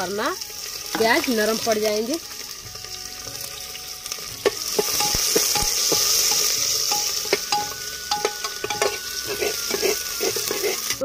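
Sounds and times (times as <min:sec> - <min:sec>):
onions sizzling in hot oil: 0:00.0 - 0:11.0
ladle clinking on pot: 0:04.8 - 0:09.9
metal ladle scraping a pot: 0:08.5 - 0:11.0.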